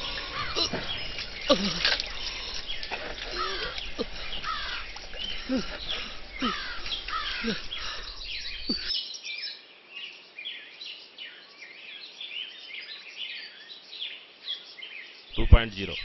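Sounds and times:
footsteps wading through water: 0.0 - 8.9
birds chirping: 0.0 - 9.7, 10.5 - 16.0.

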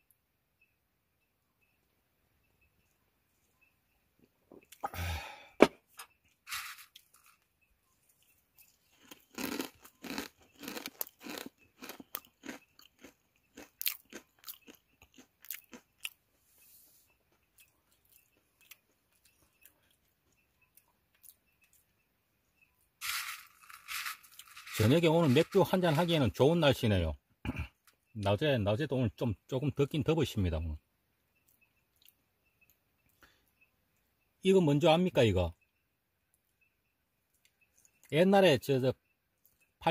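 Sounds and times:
crunchy chewing: 6.3 - 26.2.

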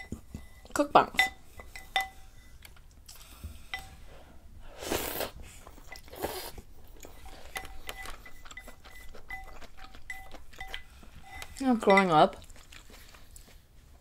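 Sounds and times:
noisy slurps of hot soup: 4.7 - 7.6
chopsticks tapping stoneware bowl: 7.6 - 12.2.

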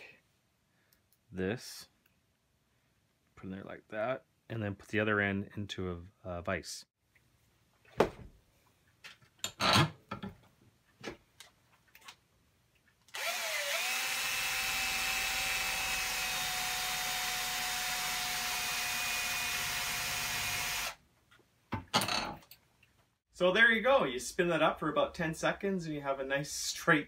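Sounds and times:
cordless drill whine: 13.2 - 21.0.

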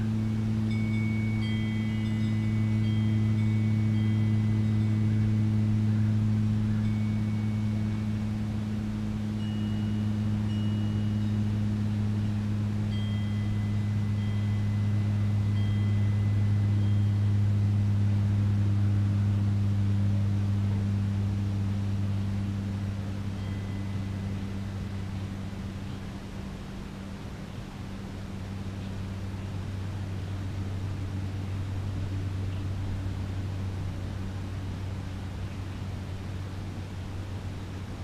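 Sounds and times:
faint high chime notes: 0.0 - 26.1
low engine hum: 0.0 - 38.0.

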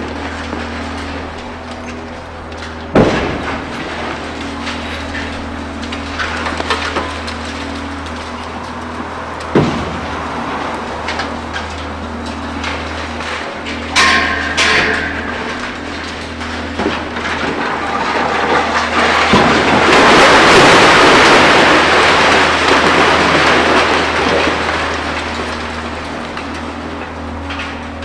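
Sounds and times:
falling rubble crashing: 0.0 - 28.0
sharp metallic crashes: 13.8 - 15.8.

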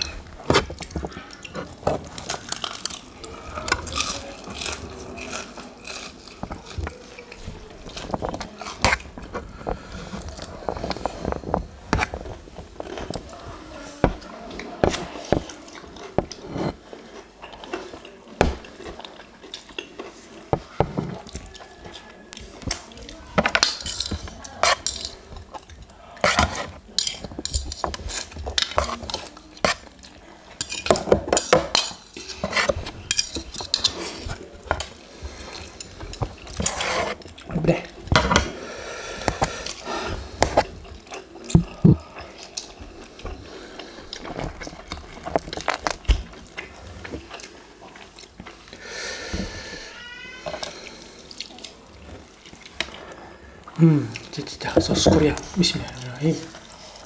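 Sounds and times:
chewing: 0.0 - 57.0
metal forks clinking and scraping: 23.5 - 25.3, 26.3 - 29.8, 30.6 - 34.8.

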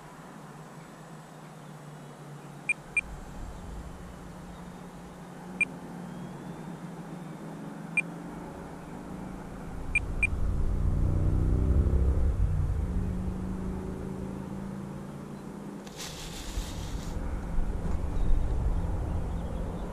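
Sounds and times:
steady low hum: 2.7 - 6.3
low rumble: 2.8 - 5.6, 9.3 - 14.3, 16.4 - 19.9.

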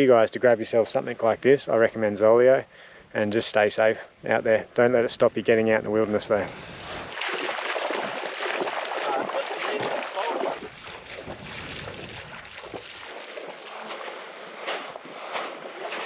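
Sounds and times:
water sloshing and splashing: 6.9 - 16.0.

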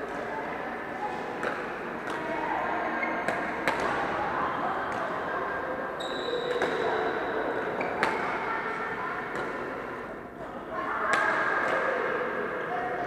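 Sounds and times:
badminton racket hitting shuttlecock: 3.2 - 4.0.

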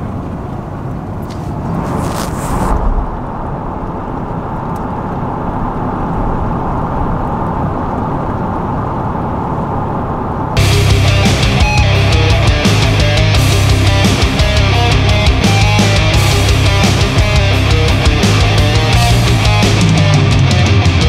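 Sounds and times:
brief loud hissing rush: 1.3 - 4.0.

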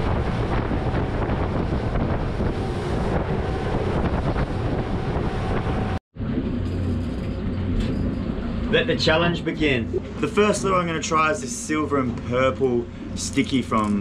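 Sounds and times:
wind buffeting microphone: 0.0 - 6.6
water rushing past hull: 0.0 - 13.2
boat engine: 0.0 - 14.0.

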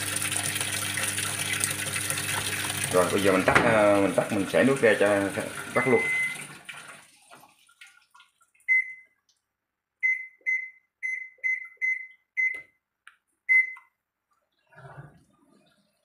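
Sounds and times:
running water: 0.0 - 8.7
washing machine panel beeping: 5.6 - 6.5, 8.7 - 9.2, 10.0 - 12.8, 13.5 - 14.0.

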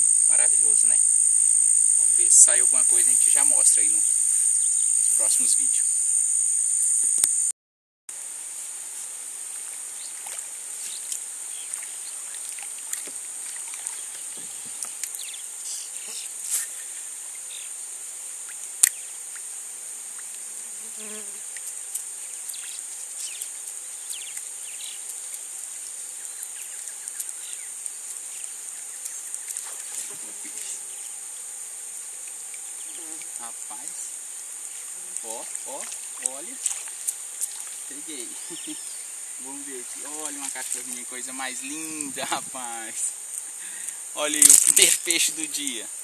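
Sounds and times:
insects chorus drone: 0.0 - 7.5, 8.1 - 46.0.

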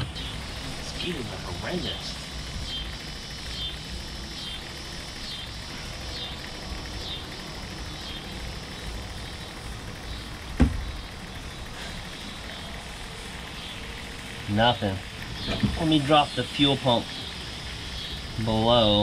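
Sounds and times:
electric fuel pump humming: 0.0 - 19.0
pulsing high buzz: 0.0 - 19.0
sharp knock: 10.6 - 10.8.

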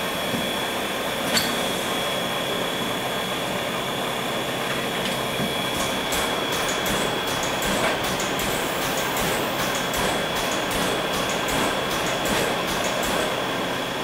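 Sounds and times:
steam locomotive hissing: 5.8 - 13.5.

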